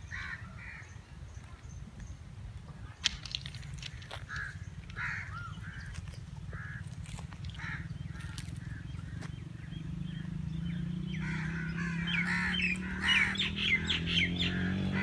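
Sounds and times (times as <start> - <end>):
crows cawing: 0.1 - 1.0, 3.8 - 9.3, 11.1 - 15.0.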